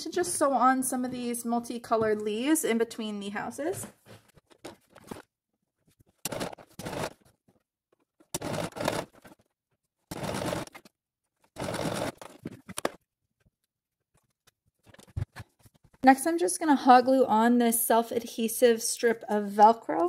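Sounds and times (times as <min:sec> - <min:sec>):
sewing machine stitching: 0:06.2 - 0:07.3, 0:08.3 - 0:09.4, 0:10.1 - 0:10.9, 0:11.5 - 0:12.8.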